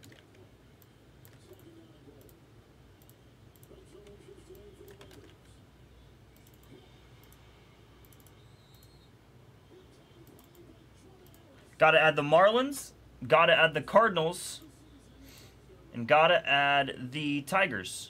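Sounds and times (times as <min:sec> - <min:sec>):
keyboard and mouse clicking: 0:00.0 - 0:02.4, 0:08.0 - 0:08.9.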